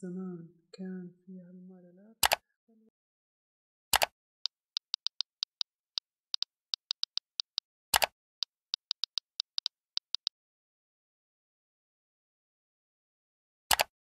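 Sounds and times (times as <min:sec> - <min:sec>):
keyboard key clicks: 0:04.8 - 0:05.7, 0:06.4 - 0:08.1, 0:08.8 - 0:10.3, 0:13.7 - 0:13.9.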